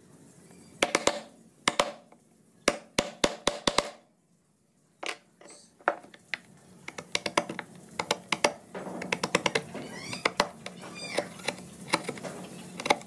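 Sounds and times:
mallet striking wood chisel: 0:00.8 - 0:02.0, 0:02.7 - 0:04.0.

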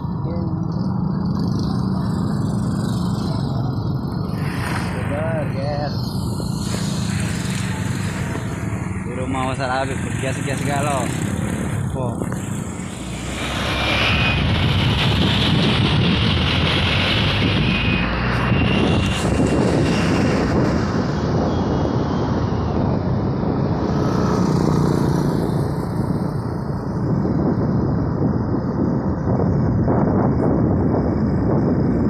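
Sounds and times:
motorcycle engine running: 0:00.0 - 0:13.0
wind rumble on microphone: 0:00.0 - 0:32.0.

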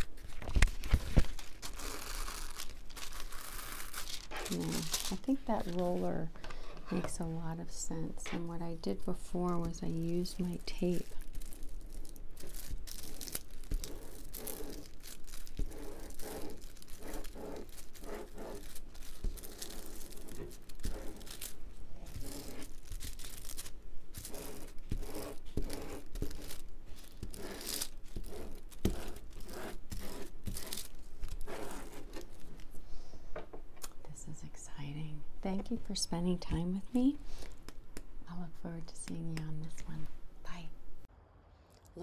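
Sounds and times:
crinkling plastic film: 0:00.0 - 0:06.0, 0:09.7 - 0:24.8, 0:26.1 - 0:32.7.

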